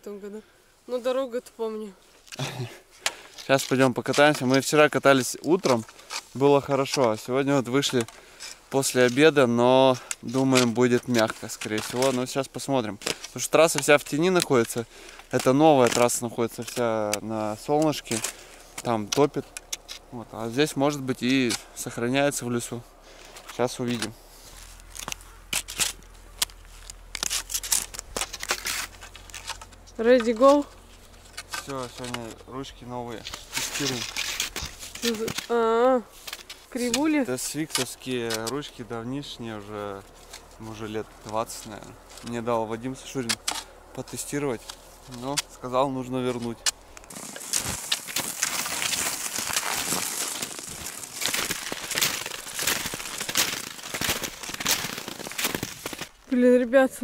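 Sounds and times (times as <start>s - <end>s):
ski boots clicking into bindings: 2.3s - 22.6s, 23.2s - 35.5s, 36.2s - 56.1s
skis scraping on packed snow: 31.5s - 35.5s, 36.1s - 43.3s, 44.0s - 56.1s.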